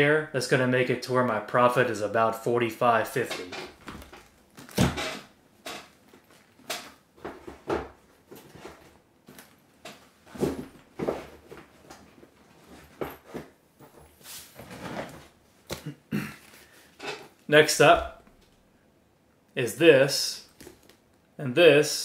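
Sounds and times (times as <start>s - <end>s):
handling knocks and rustles: 3.2s - 17.4s.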